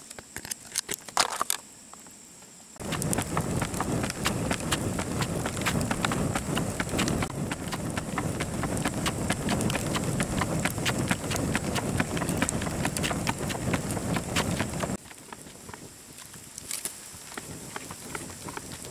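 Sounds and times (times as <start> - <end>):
low rush of flame: 2.8 - 15.0
wood fire crackling: 2.8 - 15.5.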